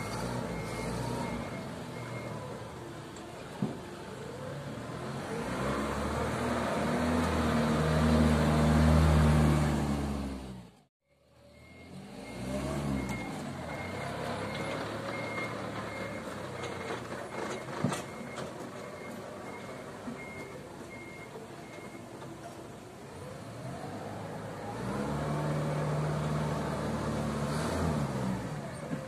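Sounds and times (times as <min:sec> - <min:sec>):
reversing beeper: 0:00.0 - 0:02.6, 0:11.1 - 0:22.0
forklift engine revving: 0:00.0 - 0:02.9, 0:04.3 - 0:19.6, 0:23.5 - 0:29.0.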